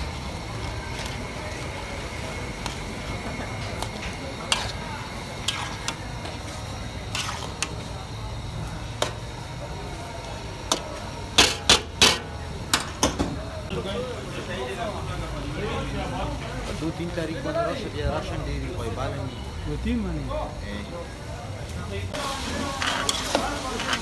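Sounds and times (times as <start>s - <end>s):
cooking background noise: 0.0s - 24.0s
metal spatula stirring meat: 2.5s - 8.0s, 22.6s - 24.0s.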